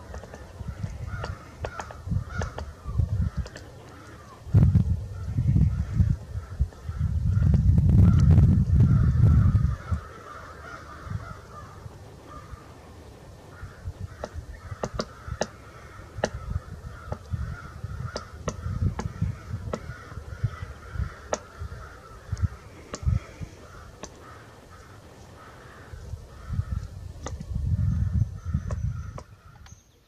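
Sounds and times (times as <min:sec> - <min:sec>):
woodpecker ticks: 0:00.0 - 0:04.4, 0:13.5 - 0:27.4, 0:28.4 - 0:29.8.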